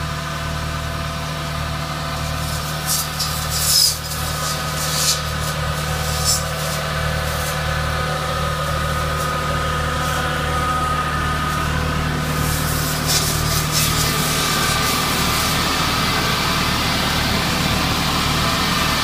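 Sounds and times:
tractor diesel engine running: 0.0s - 19.0s
pruning saws running: 0.7s - 19.0s
branches crackling as cut: 2.4s - 7.6s.

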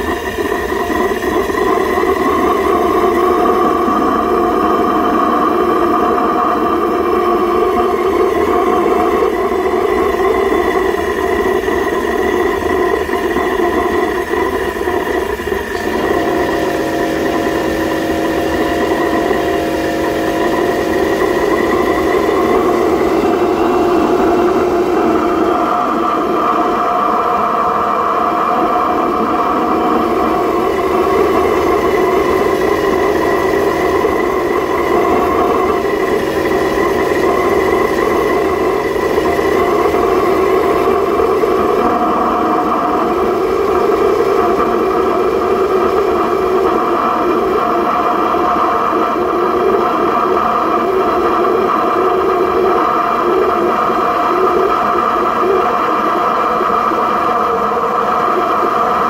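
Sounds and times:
oil burner flame firing: 0.0s - 27.0s, 27.6s - 47.1s
steady hum: 0.0s - 59.0s.

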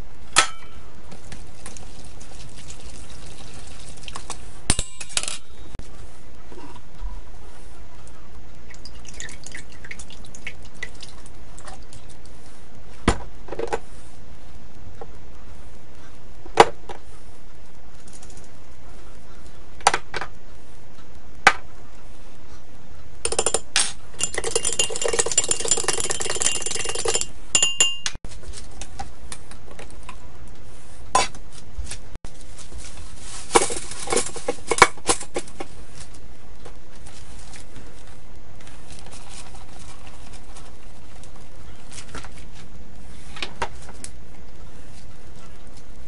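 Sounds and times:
metal spoon clinking on glass: 23.3s - 28.2s.

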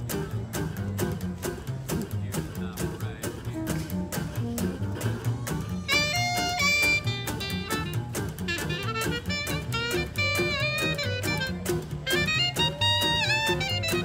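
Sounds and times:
strummed acoustic guitar: 0.0s - 14.0s
upright double bass: 0.0s - 14.0s
wind instrument melody: 5.5s - 14.0s.

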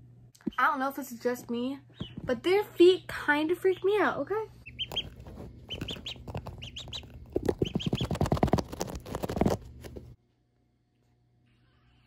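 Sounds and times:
ducklings peeping: 1.9s - 4.0s, 4.6s - 9.6s.

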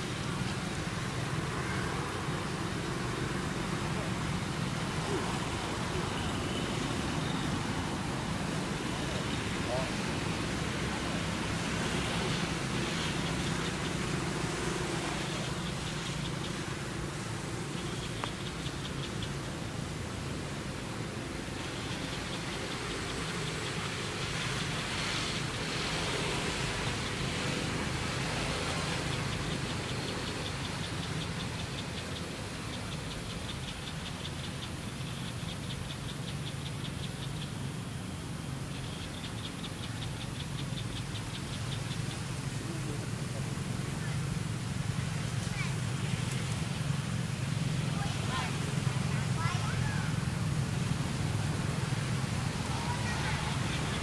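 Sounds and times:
insect ticking: 12.9s - 25.9s, 28.1s - 42.6s
high rapid pulsing call: 47.8s - 54.0s.

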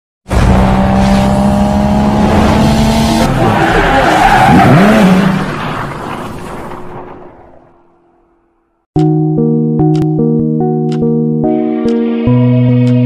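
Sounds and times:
tyres skidding: 0.4s - 8.5s.

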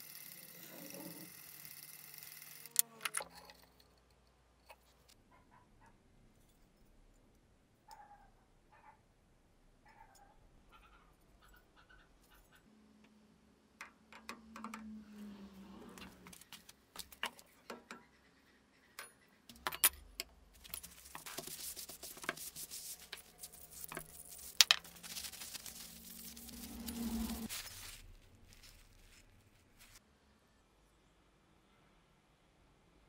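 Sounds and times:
paper towel rustling: 20.6s - 30.0s.

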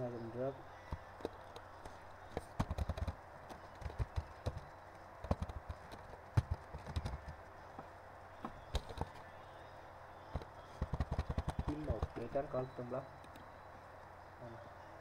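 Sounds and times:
computer keyboard typing: 1.0s - 7.6s, 10.3s - 12.6s.

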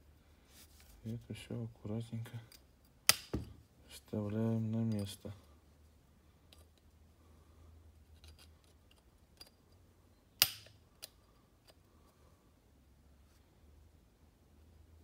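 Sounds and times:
metallic clicks of small tools: 8.2s - 9.8s, 10.4s - 11.8s.

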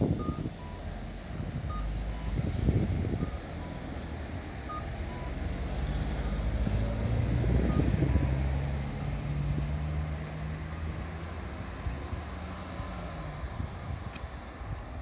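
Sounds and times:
low rumble of traffic: 0.0s - 15.0s
crossing signal two-tone beeps: 0.1s - 0.9s, 1.6s - 2.4s, 3.1s - 4.0s, 4.7s - 5.4s, 6.2s - 6.6s, 7.6s - 8.6s.

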